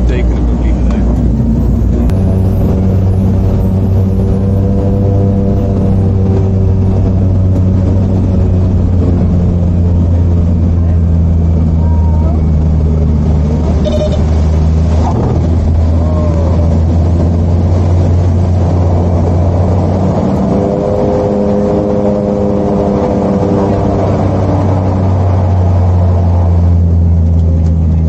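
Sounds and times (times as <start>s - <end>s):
higher tones: 0.0s - 17.6s
propeller aircraft engines droning: 0.0s - 28.0s.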